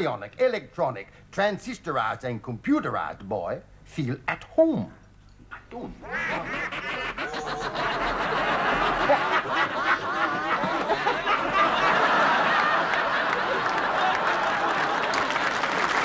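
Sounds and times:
man laughing heartily: 0:06.0 - 0:14.2
audience laughter: 0:06.1 - 0:15.5.

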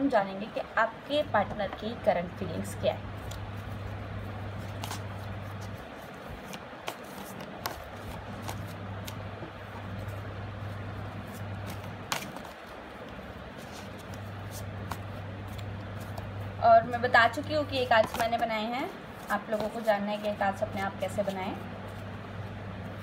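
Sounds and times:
low hum and hiss: 0:00.0 - 0:23.0
cards rustling while shuffled: 0:03.1 - 0:23.0
sharp card clicks: 0:04.7 - 0:05.2, 0:11.6 - 0:16.3.

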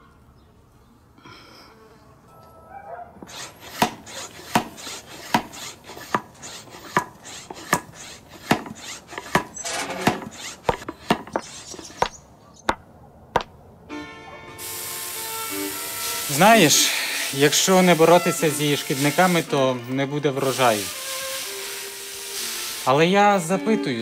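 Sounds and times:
chopping knocks: 0:08.5 - 0:12.8, 0:13.4 - 0:13.6.

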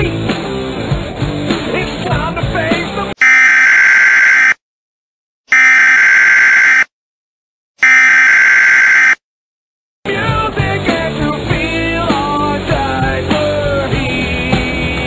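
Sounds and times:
distorted buzzer blasts: 0:03.2 - 0:04.6, 0:05.5 - 0:06.9, 0:07.8 - 0:09.2.

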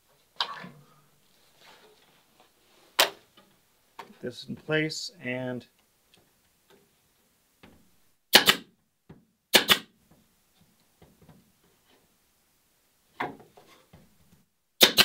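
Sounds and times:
nail gun firing: 0:08.3 - 0:08.7, 0:09.5 - 0:09.9, 0:14.8 - 0:15.0.

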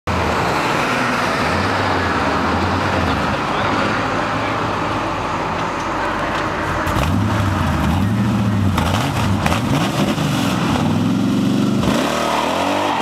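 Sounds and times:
truck engine revving: 0:06.8 - 0:13.0
tires spinning in a burnout: 0:06.9 - 0:13.0.

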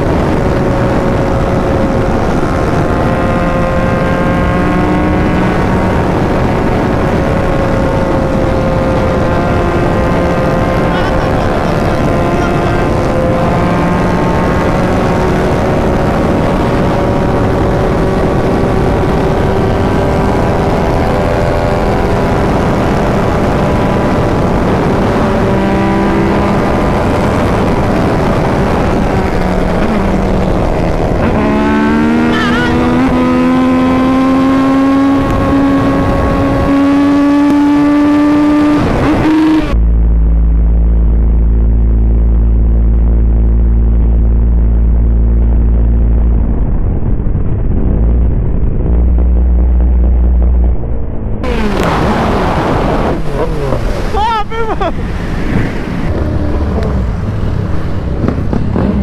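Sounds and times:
motorcycle engines at full throttle: 0:00.0 - 0:59.0
wind rush: 0:00.0 - 0:59.0
dull steady hum: 0:39.7 - 0:54.2.

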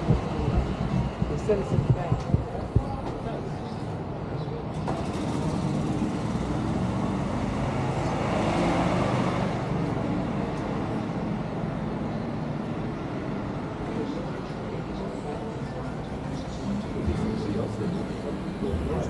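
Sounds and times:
vehicle driving past: 0:04.9 - 0:11.1.

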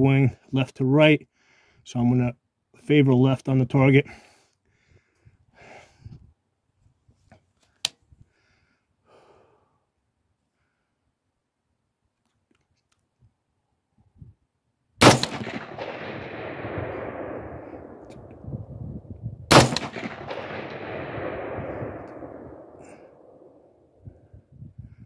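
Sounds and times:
rifle shots with echo: 0:15.0 - 0:18.7, 0:19.4 - 0:24.0.

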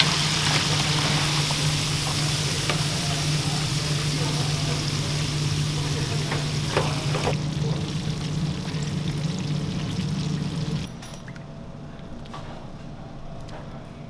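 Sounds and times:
oil dripping into fryer: 0:00.0 - 0:10.9
steady low hum: 0:00.0 - 0:10.9
kitchen background: 0:00.0 - 0:11.4
light clinks: 0:10.9 - 0:11.4.

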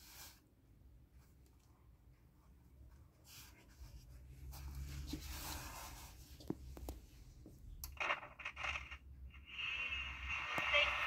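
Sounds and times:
radio speaker hiss: 0:09.4 - 0:11.0.

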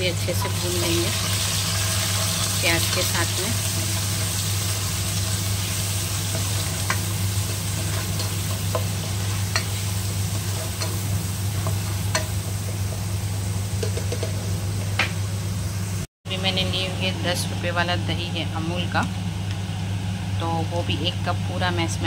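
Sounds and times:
onions sizzling in hot oil: 0:00.0 - 0:16.1.

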